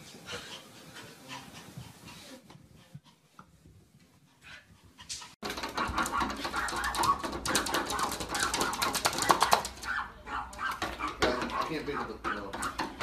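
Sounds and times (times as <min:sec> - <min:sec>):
dog scrabbling at glass door: 0:05.4 - 0:13.0.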